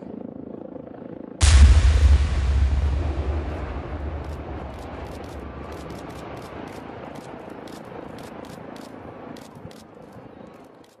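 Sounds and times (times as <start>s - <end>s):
building collapse rumble: 1.4s - 7.6s.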